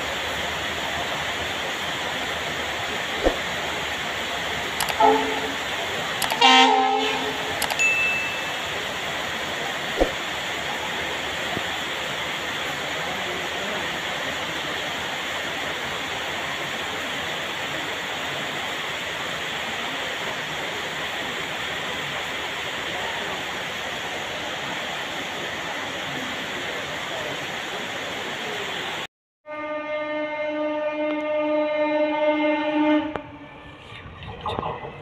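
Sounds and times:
steady rain falling: 0:00.0 - 0:29.1.

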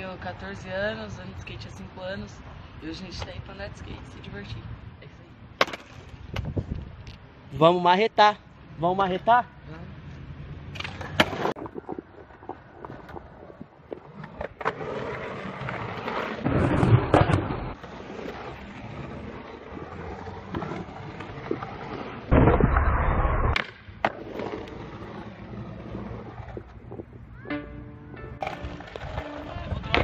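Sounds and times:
skateboard wheels rolling on concrete: 0:00.0 - 0:30.0
skateboard clacks: 0:05.6 - 0:06.5, 0:28.3 - 0:30.0.

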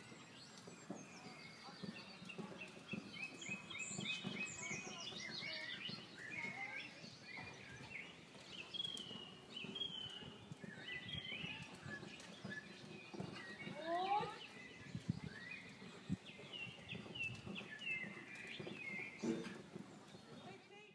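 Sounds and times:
outdoor background noise: 0:00.0 - 0:20.9
songbirds chirping and singing: 0:00.0 - 0:20.9.

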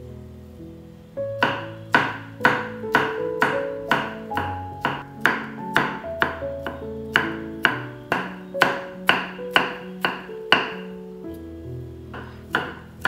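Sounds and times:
background music: 0:00.0 - 0:13.0
knife chopping on wooden board: 0:01.4 - 0:10.8, 0:12.1 - 0:12.9.

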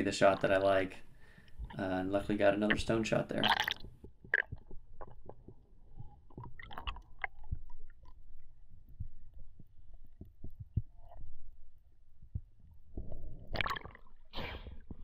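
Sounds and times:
low underwater rumble: 0:03.8 - 0:15.0.

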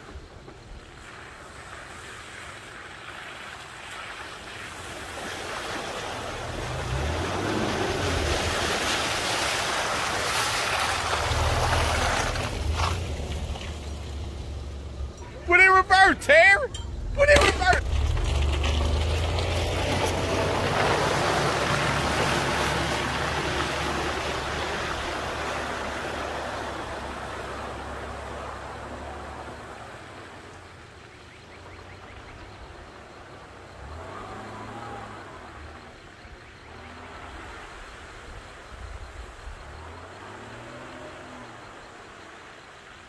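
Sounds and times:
tyres splashing through mud: 0:00.0 - 0:43.0
truck engine under load: 0:06.0 - 0:30.8.

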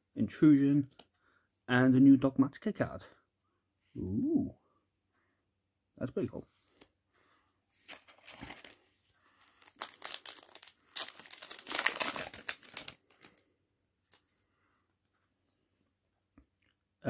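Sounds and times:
foil wrapper crinkling and tearing: 0:07.9 - 0:13.4.

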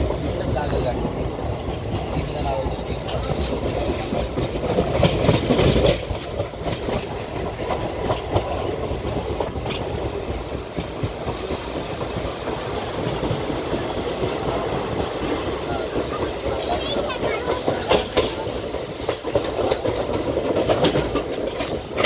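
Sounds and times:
clickety-clack over rail joints: 0:00.0 - 0:22.0
train wheels rumbling on rails: 0:00.0 - 0:22.0.

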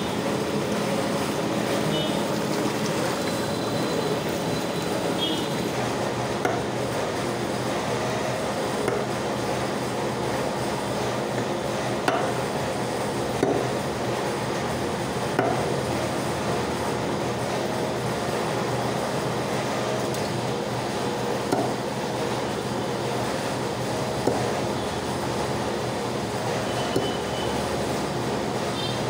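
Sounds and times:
cleaver chopping on wooden block: 0:13.4 - 0:13.6, 0:15.4 - 0:15.6, 0:21.5 - 0:21.8.

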